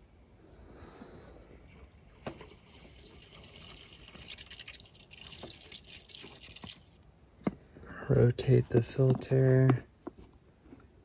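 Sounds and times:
coffee fizzing through filter: 1.6s - 7.0s.

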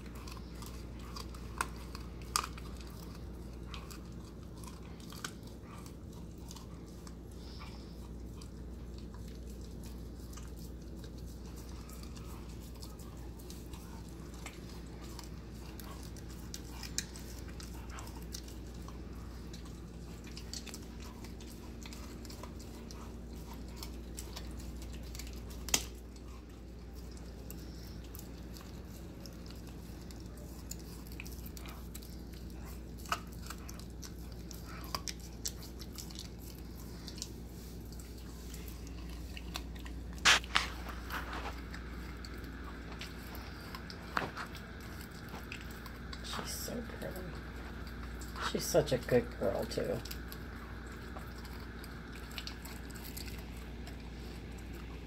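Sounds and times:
puppy chewing and crunching: 0.0s - 55.0s
steady low hum: 0.0s - 55.0s
bone cracking: 8.4s - 46.2s, 50.0s - 55.0s.

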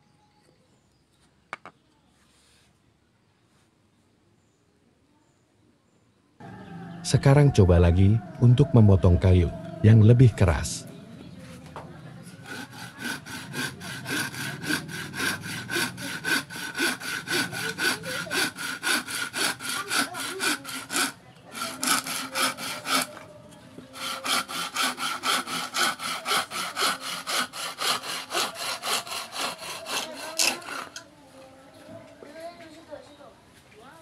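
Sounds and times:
hand saw cutting wood: 12.4s - 23.3s, 23.9s - 31.0s.

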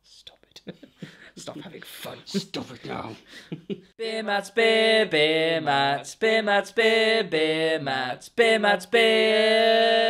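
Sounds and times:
a cappella voices singing: 4.0s - 10.0s.

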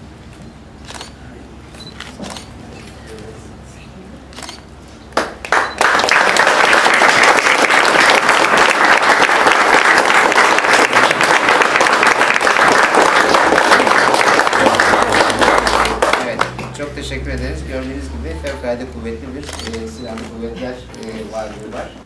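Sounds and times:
roomful of people applauding: 5.1s - 17.0s.

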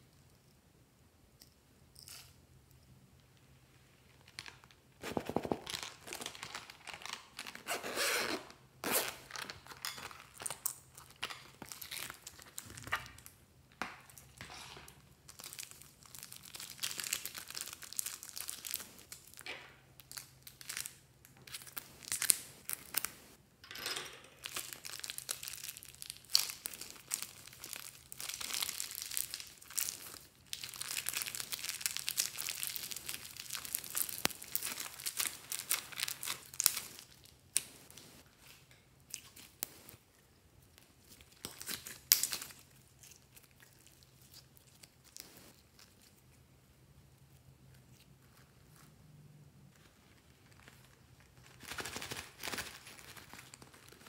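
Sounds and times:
plastic bags crinkling and tearing: 4.2s - 13.3s, 14.4s - 23.2s, 24.4s - 38.1s, 41.1s - 45.9s, 50.0s - 54.0s.

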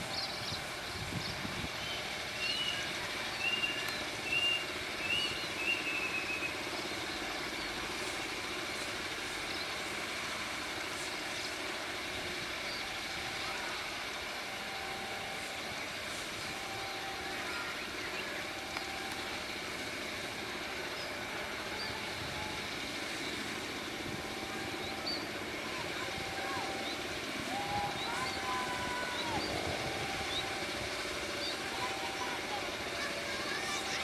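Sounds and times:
birds chirping: 0.0s - 8.3s, 15.4s - 34.0s
distant diesel locomotive rumble: 0.0s - 34.0s.

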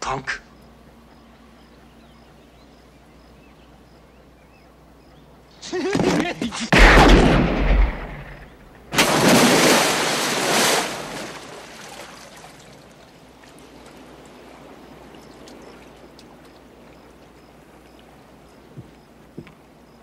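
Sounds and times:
water gushing from hydrant: 8.9s - 12.8s.

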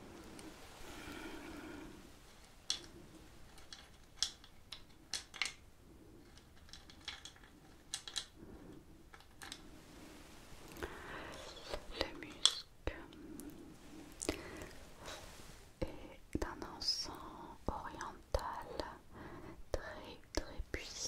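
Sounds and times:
resin chunks clicking in a bowl: 3.6s - 5.6s, 6.5s - 8.3s.

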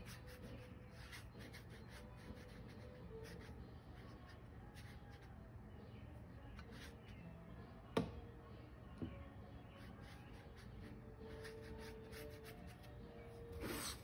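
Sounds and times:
paintbrush scratching on paper: 0.0s - 5.3s, 6.6s - 7.2s, 9.7s - 14.0s.

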